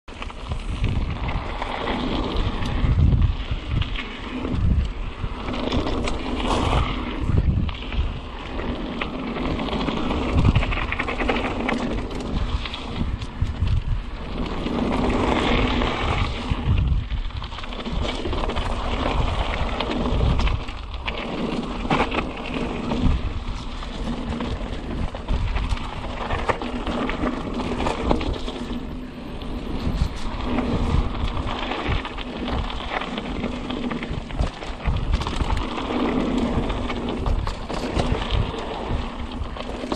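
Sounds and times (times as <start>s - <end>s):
bike tyre and trail noise: 0.0s - 39.9s
wind rumbling on microphone: 0.1s - 39.9s.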